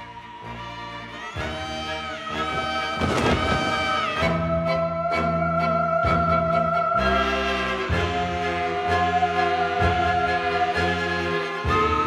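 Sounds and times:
orchestral music: 0:00.0 - 0:12.0.

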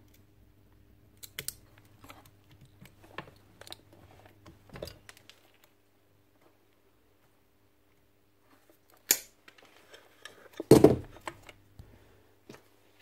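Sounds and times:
wire cutters clicking and snipping: 0:01.2 - 0:03.8, 0:08.9 - 0:09.4.

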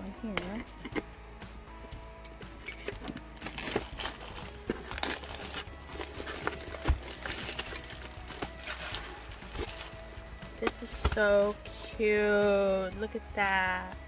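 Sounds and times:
plastic wrap crinkling: 0:03.4 - 0:10.2.

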